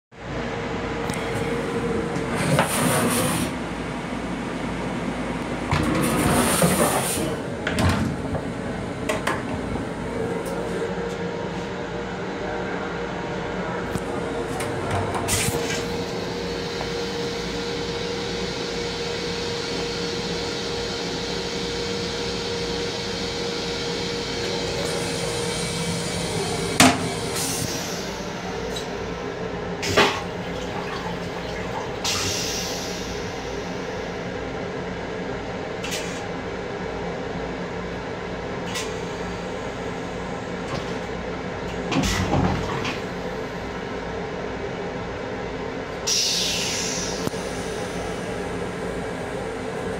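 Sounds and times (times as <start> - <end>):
train running noise: 0.5 - 34.6
toilet flush unit humming: 0.9 - 49.9.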